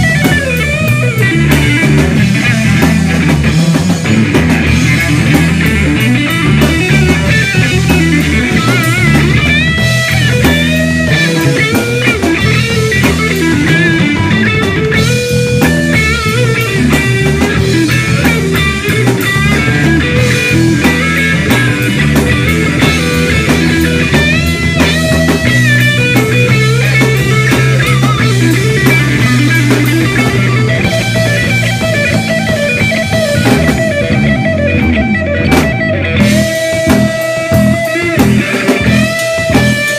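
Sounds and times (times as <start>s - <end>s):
drums: 0.0s - 39.9s
electric guitar lead: 0.0s - 39.9s
steady low bass notes: 0.0s - 39.9s.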